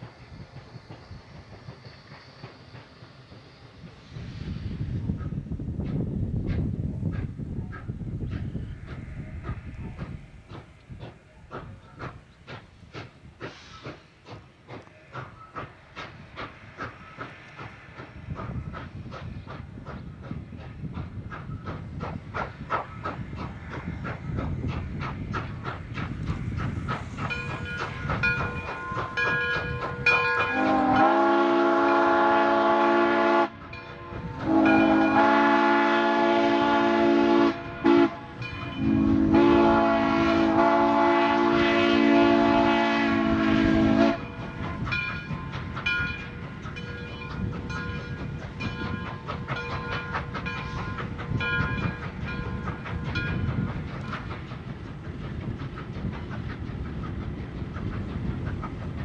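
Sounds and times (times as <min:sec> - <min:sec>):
steam locomotive chuffing: 0:00.0 - 0:59.0
steam whistle blowing: 0:30.1 - 0:44.4.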